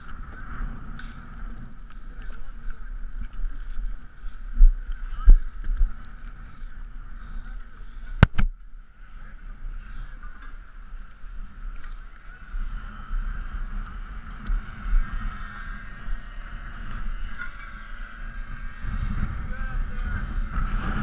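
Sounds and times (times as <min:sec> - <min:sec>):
faint clicks: 0:00.0 - 0:06.4, 0:10.2 - 0:12.3
wind rumbling on microphone: 0:00.0 - 0:21.0.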